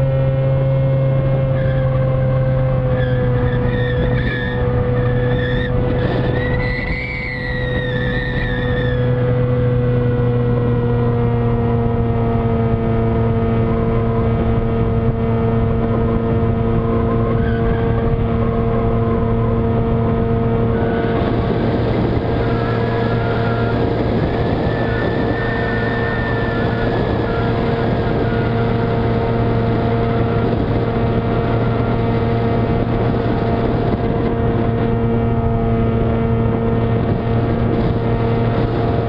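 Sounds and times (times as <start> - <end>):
electric motor and propeller humming: 0.0 - 39.0
wind rushing: 16.3 - 39.0.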